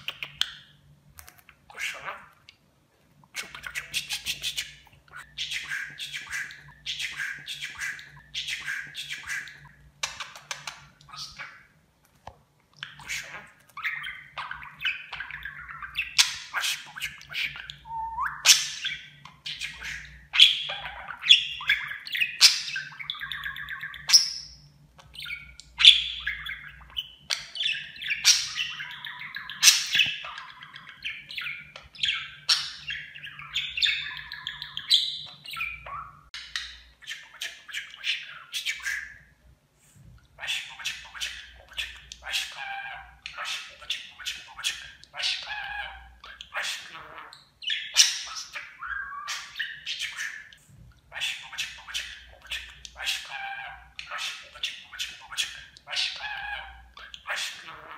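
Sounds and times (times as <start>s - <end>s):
budgerigar warbling and chattering: 1.7s - 2.4s, 12.8s - 24.5s, 25.1s - 39.3s, 40.4s - 57.9s.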